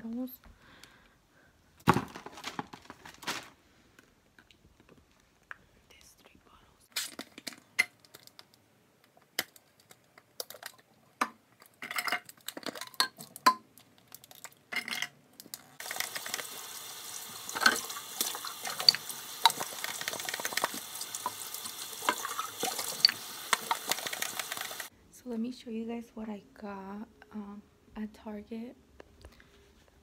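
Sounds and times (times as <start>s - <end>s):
plastic bottles clicking and knocking: 1.8s - 3.4s, 9.2s - 16.5s, 17.6s - 24.9s
tap water running into sink: 15.8s - 24.9s.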